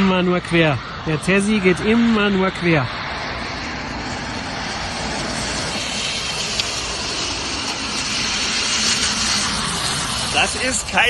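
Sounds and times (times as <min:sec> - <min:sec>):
tyres hissing on wet road: 0:02.9 - 0:11.0.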